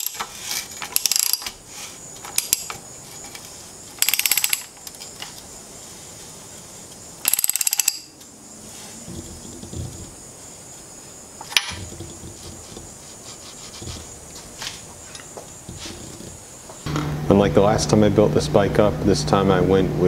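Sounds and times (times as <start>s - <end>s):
ratchet wrench clicking: 0.0s - 1.6s, 2.3s - 2.8s, 4.0s - 4.8s, 7.2s - 8.2s.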